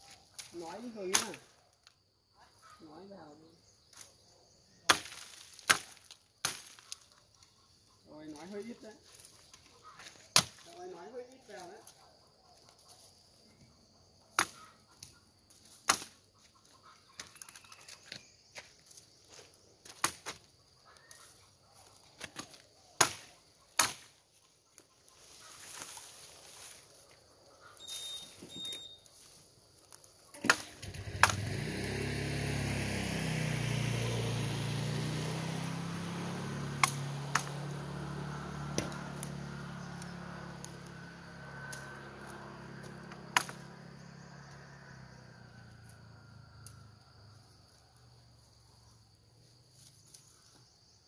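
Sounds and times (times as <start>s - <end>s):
chopping strikes on bamboo: 1.1s - 1.5s, 4.9s - 7.0s, 10.0s - 10.7s, 14.3s - 16.2s, 19.8s - 20.4s, 22.2s - 24.2s, 30.3s - 31.4s, 36.7s - 37.7s, 38.6s - 39.3s, 42.8s - 43.7s.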